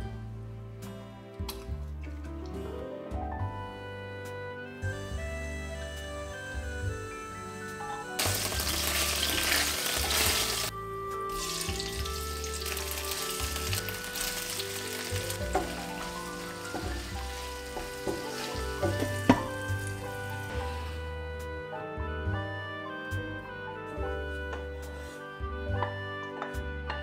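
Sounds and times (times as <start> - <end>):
background music: 0.0 - 27.0
food sizzling in a frying pan: 8.2 - 10.7, 11.3 - 20.8.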